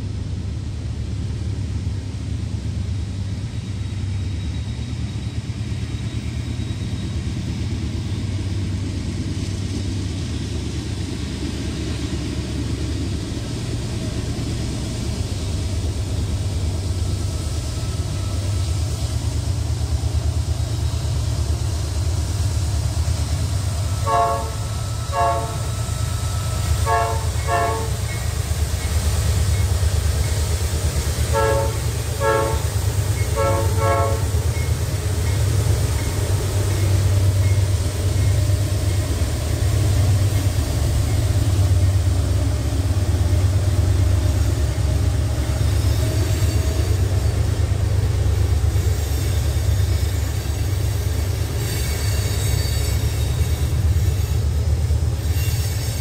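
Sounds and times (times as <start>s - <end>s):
locomotive engine drone: 0.0s - 56.0s
locomotive horn blasts: 24.0s - 26.0s, 26.6s - 28.2s, 31.3s - 34.4s.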